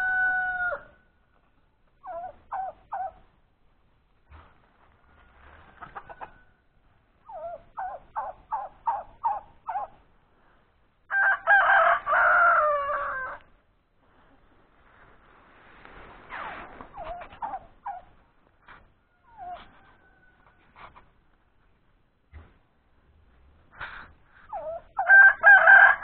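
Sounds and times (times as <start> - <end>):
rooster crowing: 0.0 - 1.0, 11.1 - 13.5, 19.2 - 20.7, 25.0 - 26.0
chickens clucking: 1.9 - 3.4, 4.8 - 10.1, 16.8 - 21.2.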